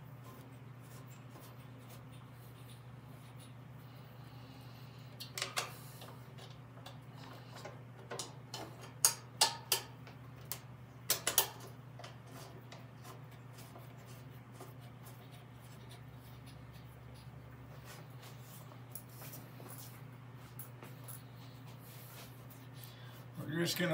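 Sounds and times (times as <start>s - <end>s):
steady low hum: 0.0s - 23.9s
metal clicks and taps of bolts: 8.1s - 11.6s.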